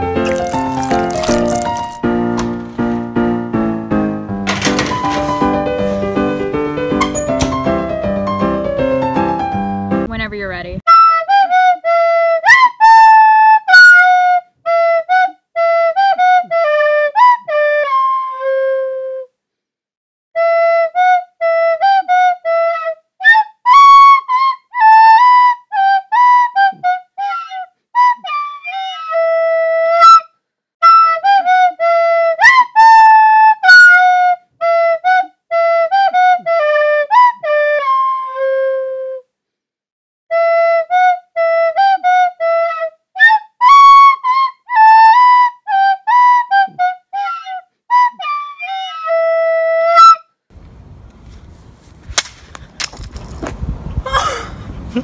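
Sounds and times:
solo flute melody: 10.9 - 19.3, 20.4 - 39.3, 40.3 - 50.4.

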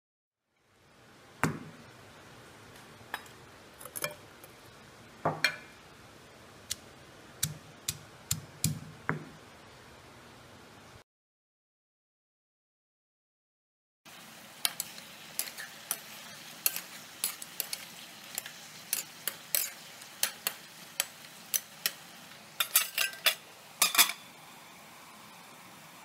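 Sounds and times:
frying hiss: 0.5 - 11.0, 14.1 - 26.0
metal utensil clinking on pan: 3.1 - 4.6, 14.6 - 22.0, 22.6 - 24.3.

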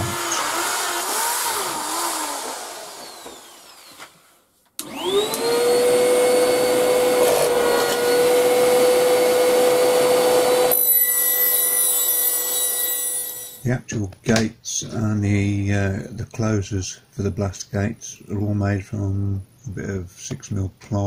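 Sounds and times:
shop vac whining: 0.0 - 13.8.

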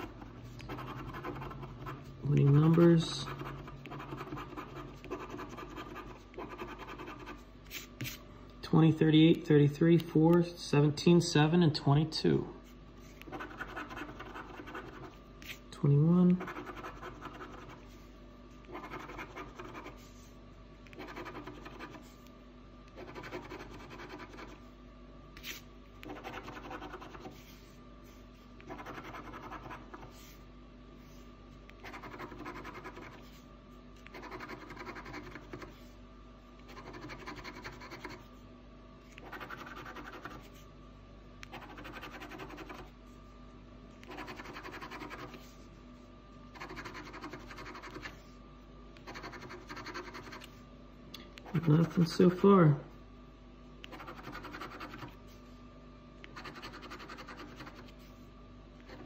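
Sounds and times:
scratching lottery ticket: 0.0 - 8.2, 13.0 - 15.6, 16.3 - 20.3, 20.9 - 22.2, 22.9 - 24.7, 25.4 - 27.6, 28.6 - 30.4, 31.8 - 33.4, 34.0 - 35.9, 36.6 - 38.3, 39.1 - 40.6, 41.4 - 42.9, 44.0 - 45.6, 46.5 - 48.2, 49.0 - 50.5, 51.4 - 52.4, 53.9 - 55.2, 56.3 - 58.1.

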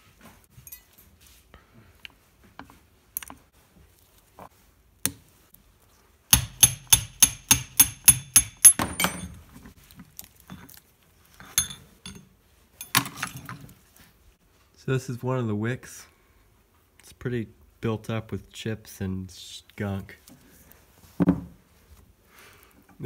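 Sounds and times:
light clinks of loose parts: 0.6 - 1.2, 11.4 - 13.8
sharp metallic taps: 6.3 - 9.2.

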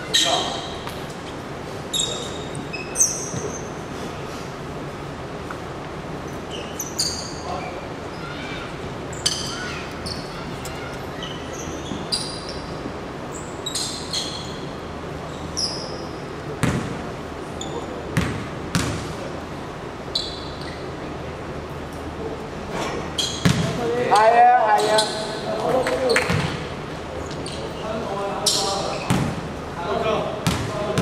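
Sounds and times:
hum of large hall: 0.0 - 31.0
shoes squeaking on hardwood floor: 1.9 - 3.8, 9.1 - 14.7.

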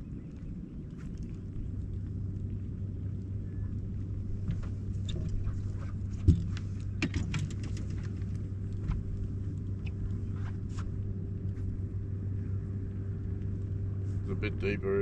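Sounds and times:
boat motor humming: 0.0 - 15.0
light clicks and ticks: 0.1 - 11.6.

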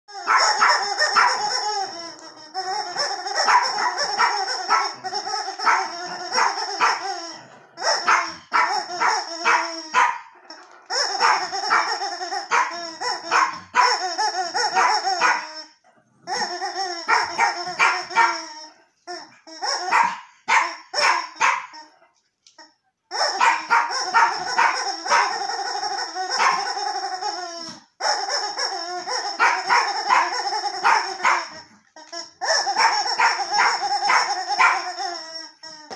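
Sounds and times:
rubber chicken toy squawking: 0.1 - 35.9.

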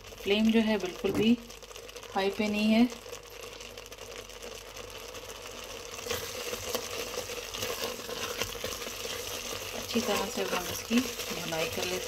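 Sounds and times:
carrots sizzling in a pot: 0.0 - 12.0
spatula stirring and scraping: 5.2 - 12.0.

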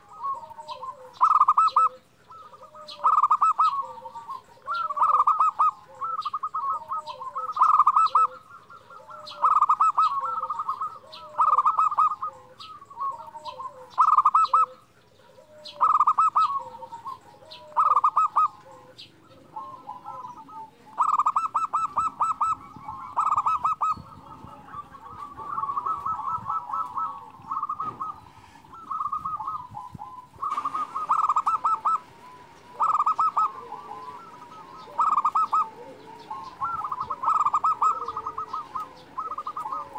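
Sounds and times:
dove cooing: 0.0 - 39.9.

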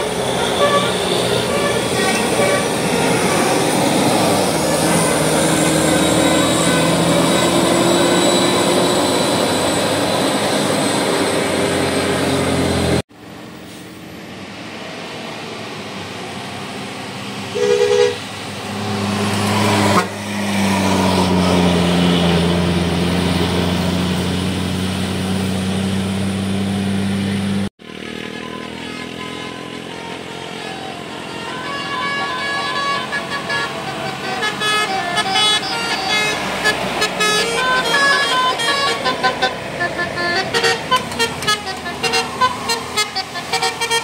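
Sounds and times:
bus horn blast: 0.0 - 10.2, 17.5 - 18.4, 19.4 - 20.4, 27.8 - 44.0
bus diesel engines climbing: 0.0 - 44.0.

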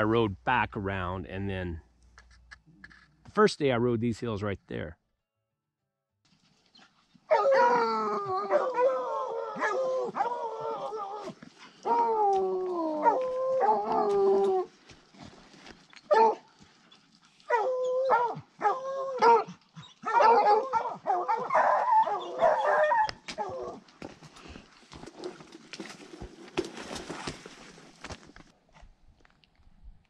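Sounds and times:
brush rustling: 6.3 - 7.3, 23.9 - 28.5
hounds baying: 7.3 - 14.7, 16.1 - 23.8.

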